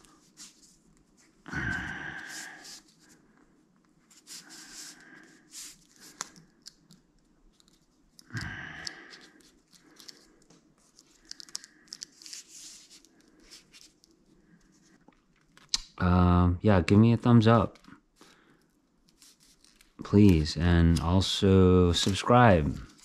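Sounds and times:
tape crinkling and tearing: 19.0 - 23.0.

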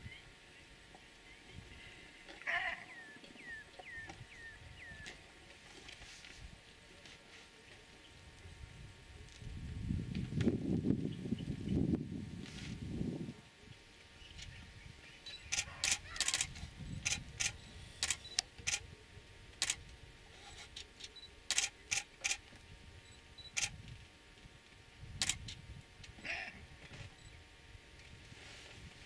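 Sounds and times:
camera shutters clicking: 15.5 - 18.8, 21.5 - 22.4, 23.5 - 23.8, 25.2 - 25.6.

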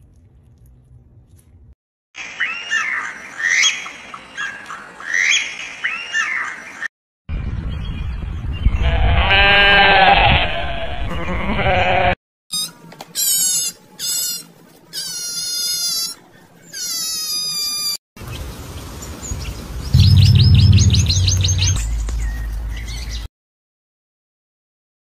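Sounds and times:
goat bleating: 8.8 - 12.2
shrill high-pitched animal calls: 12.5 - 18.0
low rumble: 19.9 - 23.1.

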